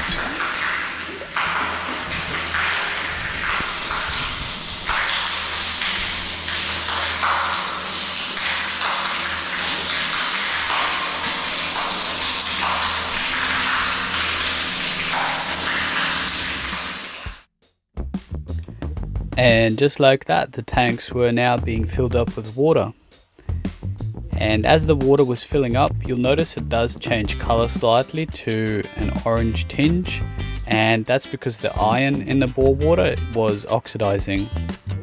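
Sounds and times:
water pouring into tank: 0:00.0 - 0:17.5
water splashing: 0:00.0 - 0:17.5.

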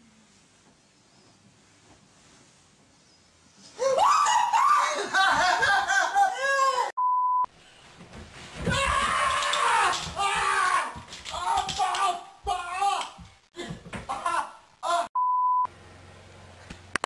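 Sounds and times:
person screaming: 0:03.8 - 0:06.9, 0:08.7 - 0:13.2, 0:14.1 - 0:15.2
censor bleep: 0:07.0 - 0:07.5, 0:15.2 - 0:15.7
mousetraps snapping: 0:08.7 - 0:12.2
person yelling: 0:08.7 - 0:13.2, 0:14.1 - 0:15.2.

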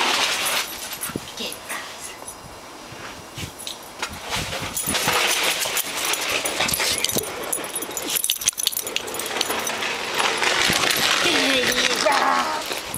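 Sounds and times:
dog snuffling and squeaking: 0:04.4 - 0:12.8
snow crunching and scraping: 0:09.2 - 0:12.9.

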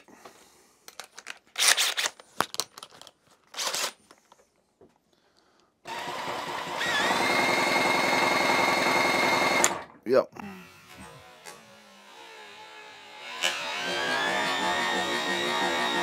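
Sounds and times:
small motor whirring: 0:10.6 - 0:16.0.

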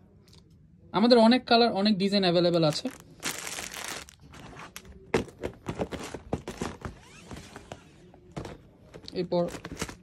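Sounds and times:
cardboard boxes knocking: 0:05.1 - 0:07.0.

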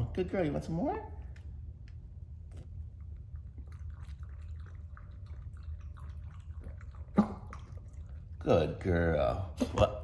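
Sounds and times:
dog lapping water: 0:02.9 - 0:09.3.

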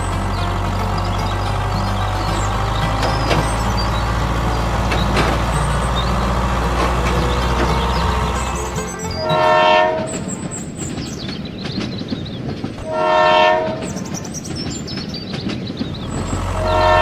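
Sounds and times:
toy train rattling on track: 0:00.0 - 0:12.8
train horn blasts: 0:06.8 - 0:10.4, 0:12.8 - 0:14.0, 0:16.5 - 0:17.0.

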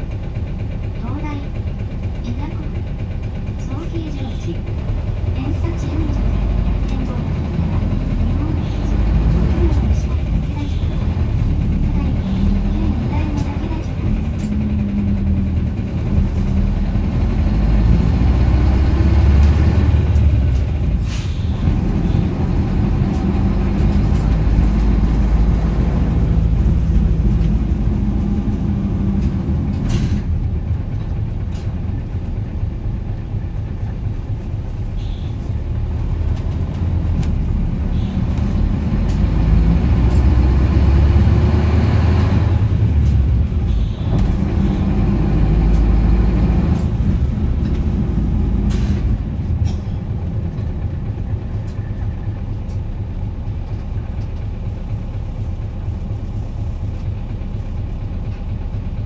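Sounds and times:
bus diesel engine running: 0:00.0 - 0:59.0.

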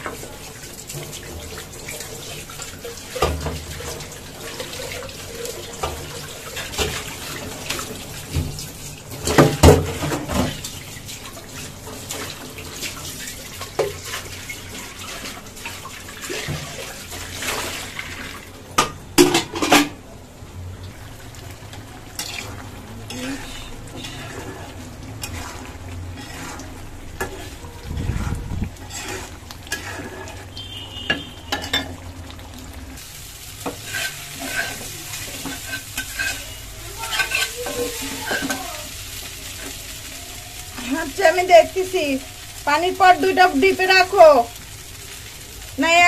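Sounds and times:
tap water running into sink: 0:00.0 - 0:19.9
metal pots clanking: 0:18.8 - 0:20.0, 0:22.1 - 0:32.1.

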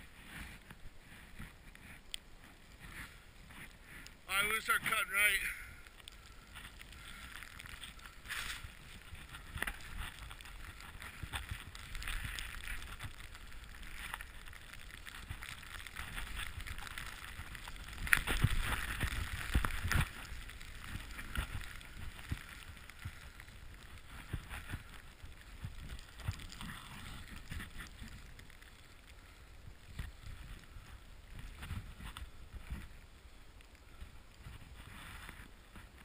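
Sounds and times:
snowboard hissing through snow: 0:08.2 - 0:11.4.

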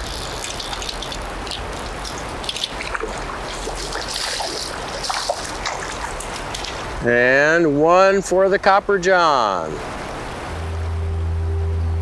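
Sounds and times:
fish splashing at surface: 0:00.0 - 0:06.9
rocky stream rushing: 0:00.0 - 0:11.5.

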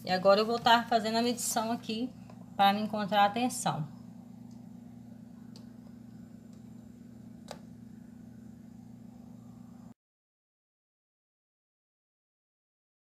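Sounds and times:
steady low hum: 0:00.0 - 0:10.0
test probes clicking on socket: 0:07.4 - 0:07.7.

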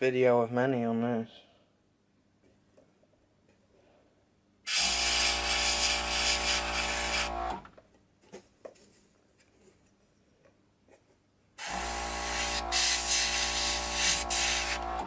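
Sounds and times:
air jet hissing: 0:11.6 - 0:15.0.

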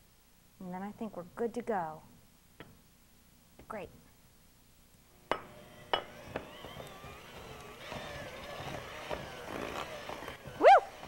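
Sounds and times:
electric hand mixer running: 0:05.5 - 0:11.0.

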